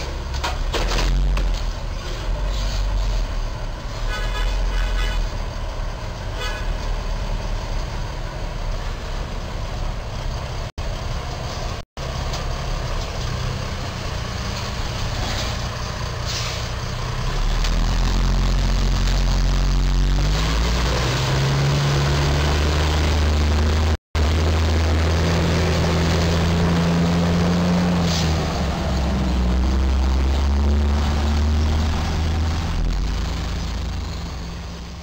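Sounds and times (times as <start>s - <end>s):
diesel truck engine running: 0.0s - 35.0s
horn tooting: 4.0s - 5.4s, 6.3s - 6.8s.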